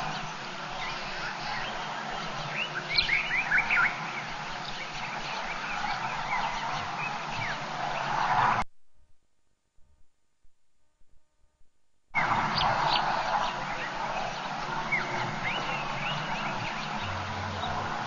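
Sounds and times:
birds calling and chirping: 0.0s - 8.6s, 12.2s - 18.0s.

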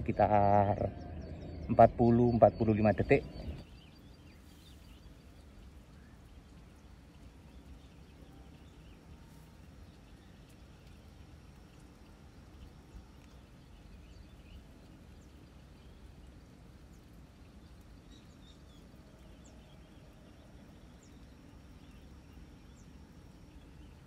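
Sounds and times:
low rumble: 0.0s - 3.7s
birds chirping: 0.0s - 24.0s.

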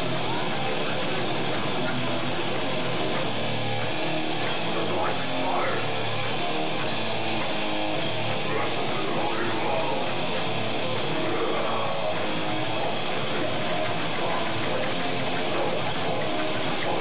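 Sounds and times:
death metal band playing: 0.0s - 17.0s.

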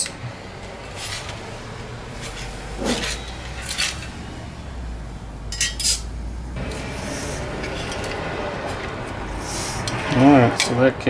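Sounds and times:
metal rubbing: 0.0s - 4.7s, 5.5s - 10.8s
metal clinks and knocks: 2.3s - 4.2s, 5.5s - 6.8s, 7.6s - 8.9s.

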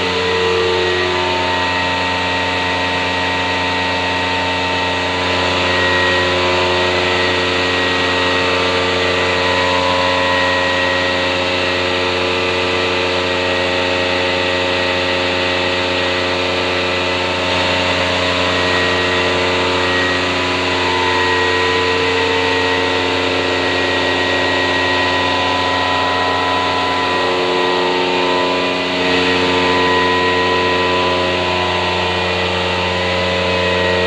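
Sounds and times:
milking machinery humming: 0.0s - 34.0s.

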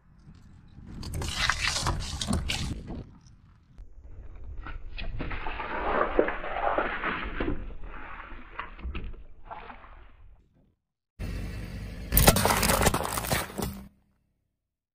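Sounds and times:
cartons crackling under a tyre: 0.0s - 8.8s, 12.1s - 13.9s
juice splashing and gushing: 5.0s - 10.4s.

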